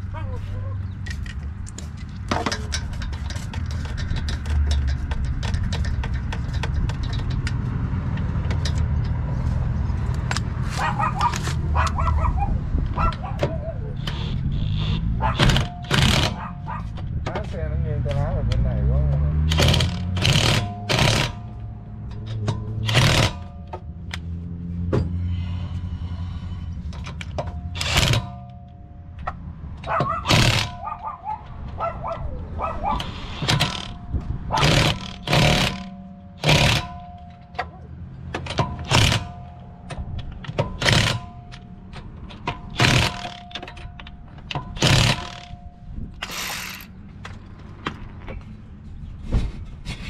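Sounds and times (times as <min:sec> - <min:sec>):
impact wrench hammering: 0:14.1 - 0:17.0, 0:19.4 - 0:23.8, 0:27.1 - 0:31.0, 0:33.0 - 0:37.7, 0:38.3 - 0:45.6, 0:46.2 - 0:46.9.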